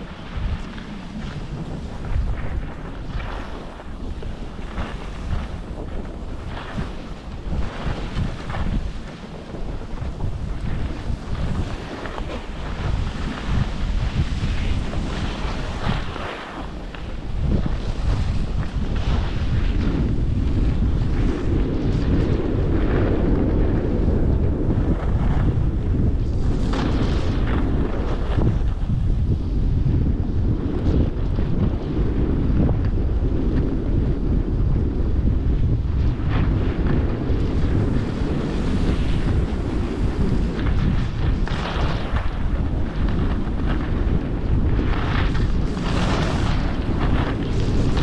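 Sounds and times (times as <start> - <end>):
skis sliding on snow: 0.0 - 48.0
wind buffeting microphone: 0.0 - 48.0
skis hissing on snow: 0.1 - 19.6.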